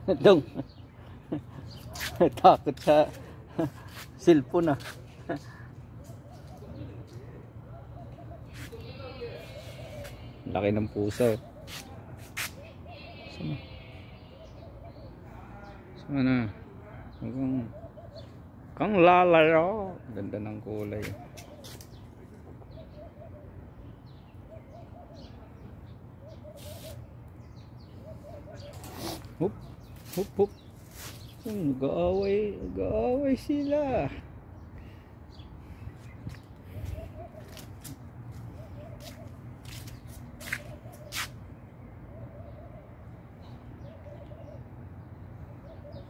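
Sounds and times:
dove cooing: 5.5 - 8.7, 9.4 - 10.4, 17.5 - 18.4, 22.4 - 23.8, 24.5 - 25.6, 26.2 - 27.0, 27.8 - 29.7, 36.7 - 39.4, 42.1 - 44.7, 45.4 - 46.0.

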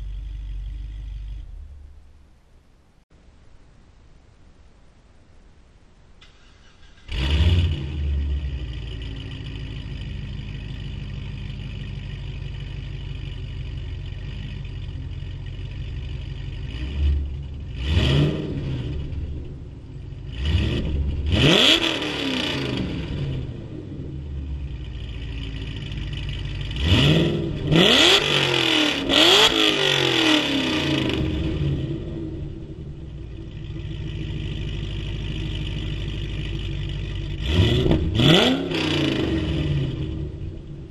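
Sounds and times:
engine revving: 6.3 - 40.9
car engine idling loudly: 7.7 - 18.0, 22.4 - 30.0, 32.3 - 38.2.

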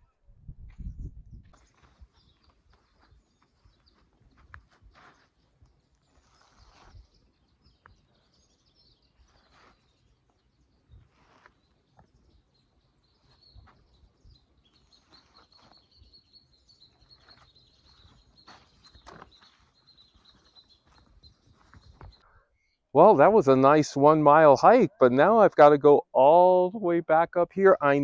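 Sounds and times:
footsteps on dirt trail: 1.4 - 8.0, 13.1 - 22.3.

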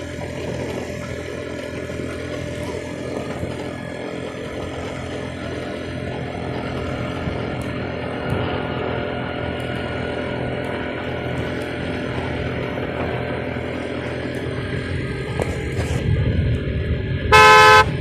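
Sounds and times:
small engine humming: 0.0 - 18.0.

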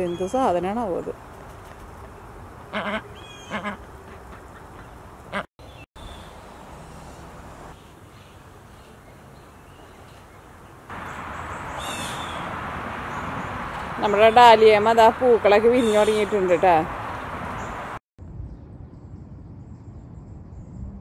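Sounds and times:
outdoor background noise: 0.0 - 21.0
duck quacking: 2.7 - 5.5.

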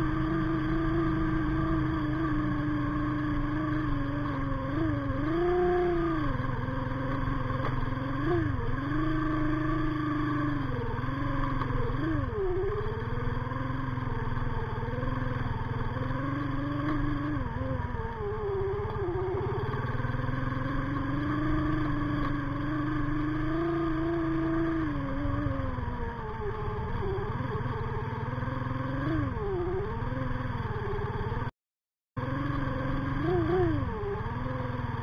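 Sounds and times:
motorcycle engine revving: 0.0 - 31.5, 32.2 - 35.0.

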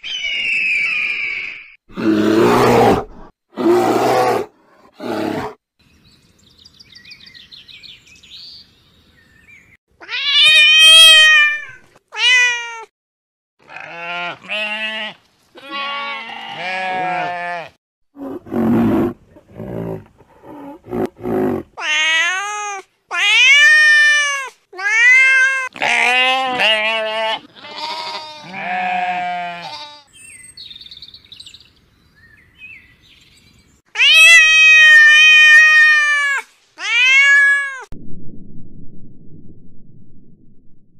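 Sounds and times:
sheep and lambs bleating: 13.6 - 17.8, 24.9 - 30.2.

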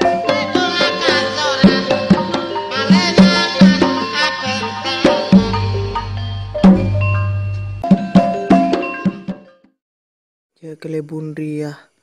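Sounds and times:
ringing pitched tones: 0.0 - 9.3
hand drum strikes: 5.0 - 9.2.

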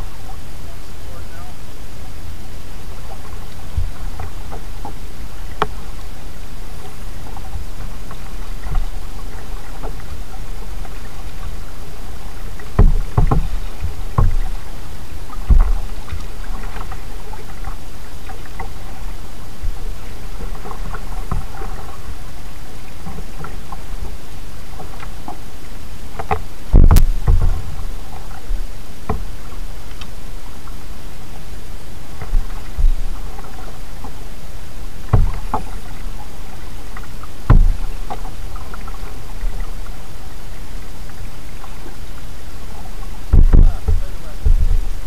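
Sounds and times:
paddle splashes and drips: 0.0 - 45.0
paddle knocking on hull: 3.0 - 6.0, 6.8 - 25.4, 26.2 - 29.6, 32.1 - 34.2, 35.1 - 39.9, 42.8 - 45.0.

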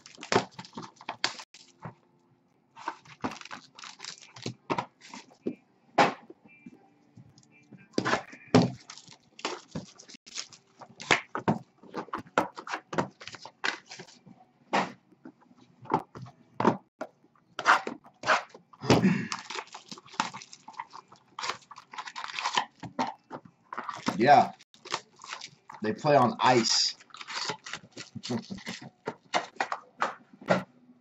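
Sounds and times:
plastic shrink-wrap tearing and crinkling: 0.0 - 1.7, 2.8 - 4.6, 8.7 - 11.3, 19.3 - 22.8, 23.9 - 25.8, 26.4 - 29.0.

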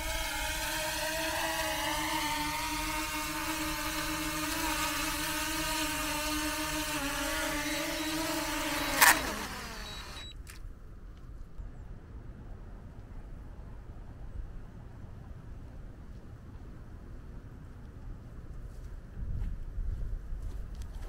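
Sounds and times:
drone propeller whine: 0.0 - 10.4.

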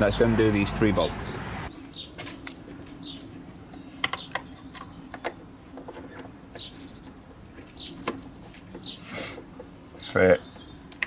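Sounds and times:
bird chirping: 1.7 - 11.0
metal tools clinking on bolts: 9.5 - 11.0.

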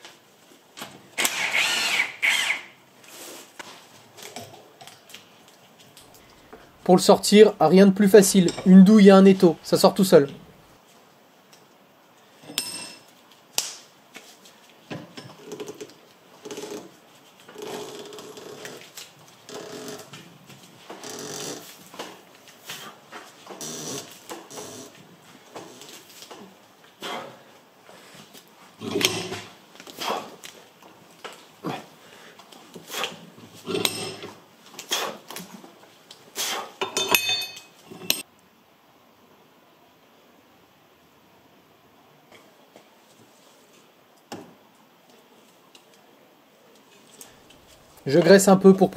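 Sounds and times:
faint room noise: 0.0 - 48.9
metal tools clinking on workbench: 8.3 - 8.9, 12.4 - 13.1, 33.7 - 34.3, 36.8 - 38.2.

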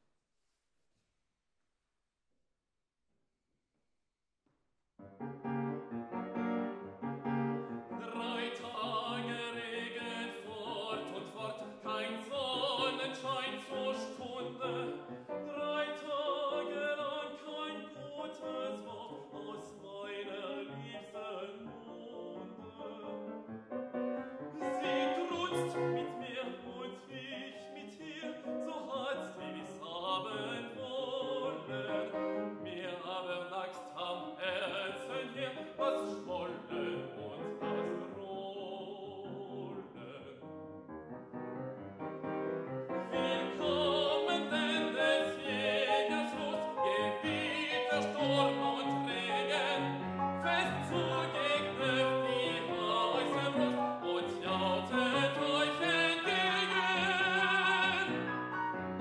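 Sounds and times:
grand piano: 5.0 - 59.0
man singing classical song: 7.6 - 23.5, 24.3 - 40.6, 43.0 - 59.0.

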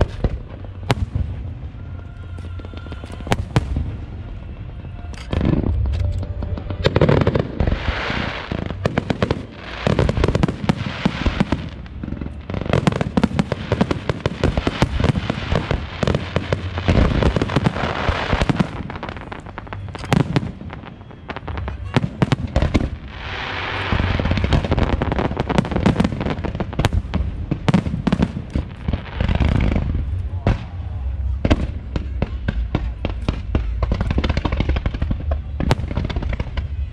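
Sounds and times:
fireworks bangs and crackles: 0.0 - 36.9
hissing crackle: 2.2 - 30.2.

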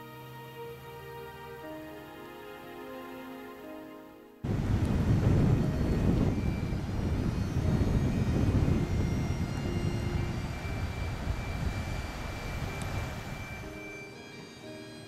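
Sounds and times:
rushing outdoor rumble: 4.4 - 13.8.

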